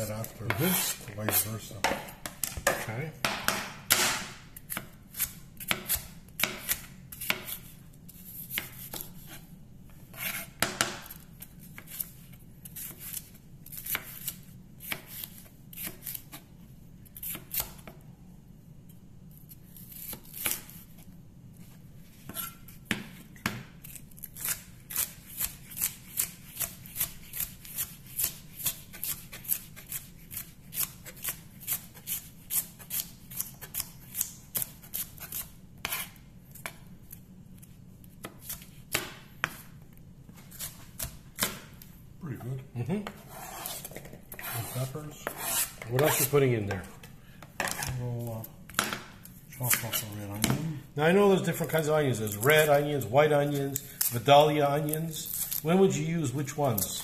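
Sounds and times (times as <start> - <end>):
knife chopping on cutting board: 0.3 - 7.7, 22.3 - 36.8, 38.2 - 39.7, 40.5 - 41.8, 43.0 - 46.9.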